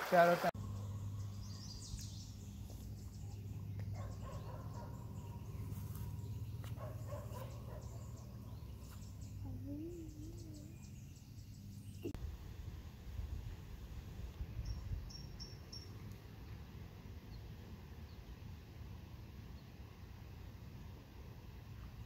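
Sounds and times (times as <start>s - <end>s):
bird calls: 0.6s - 12.2s
steady low hum: 0.6s - 22.0s.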